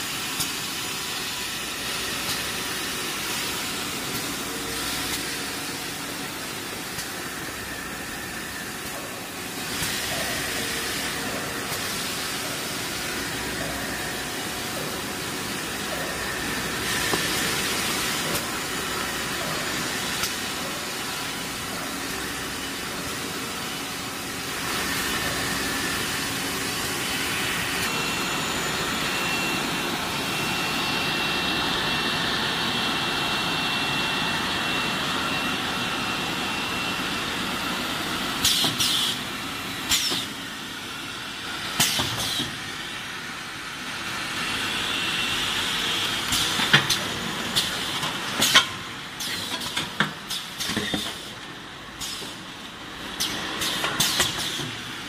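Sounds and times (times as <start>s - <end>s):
machinery mechanical din and hiss: 0.0s - 55.0s
steady high whine: 0.6s - 38.4s.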